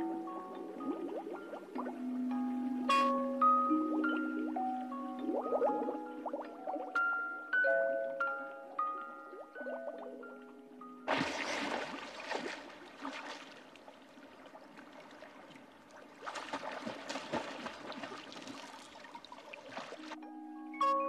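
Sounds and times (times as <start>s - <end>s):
water splashing from swimming: 11.1s - 20.2s.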